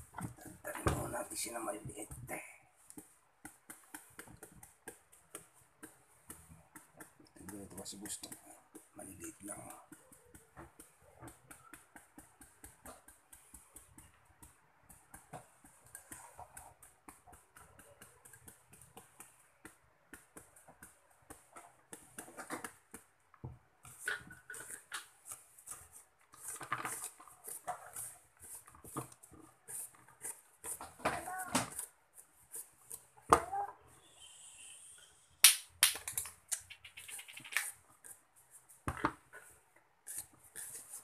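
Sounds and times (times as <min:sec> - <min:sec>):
knife scraping fruit: 0:23.8 - 0:31.9, 0:40.0 - 0:41.0.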